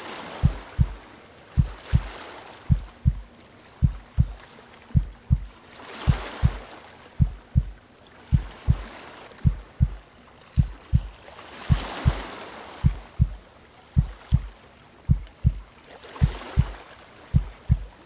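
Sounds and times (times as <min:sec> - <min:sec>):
ocean waves washing in: 0:00.0 - 0:18.0
heartbeat thumping: 0:00.4 - 0:01.0, 0:01.6 - 0:04.4, 0:05.0 - 0:05.5, 0:06.1 - 0:06.6, 0:07.2 - 0:10.0, 0:10.6 - 0:12.2, 0:12.8 - 0:14.5, 0:15.1 - 0:18.0.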